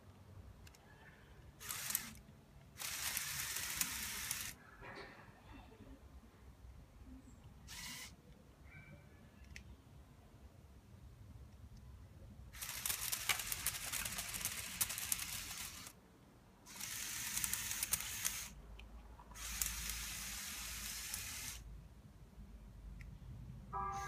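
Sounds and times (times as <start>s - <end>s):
small electric motors whirring: 1.6s - 2.2s, 2.8s - 4.6s, 7.7s - 8.1s, 12.6s - 16.0s, 16.7s - 18.6s, 19.4s - 21.6s.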